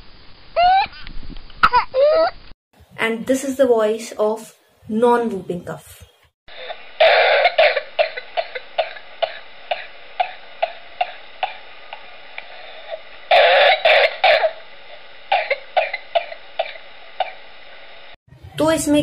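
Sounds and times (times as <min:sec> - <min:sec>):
steady hiss: 0:06.5 - 0:18.2
person coughing: 0:06.6 - 0:11.6, 0:12.9 - 0:14.6, 0:15.3 - 0:17.4.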